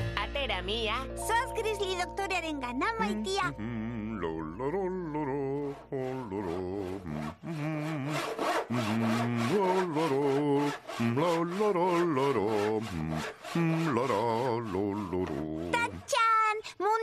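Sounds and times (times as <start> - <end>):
handsaw cutting wood: 5.1 - 16.2.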